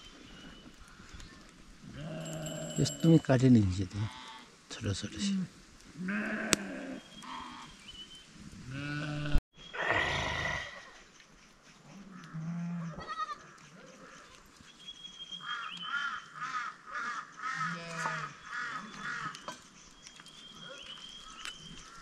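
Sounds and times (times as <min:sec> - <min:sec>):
goat bleating: 0:08.8 - 0:09.4, 0:12.4 - 0:13.4.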